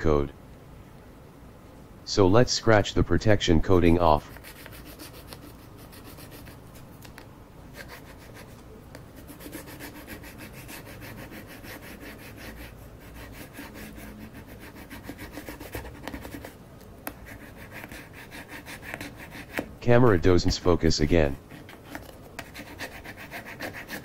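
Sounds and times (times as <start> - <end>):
scraping sticker coating: 4.2 - 19.7.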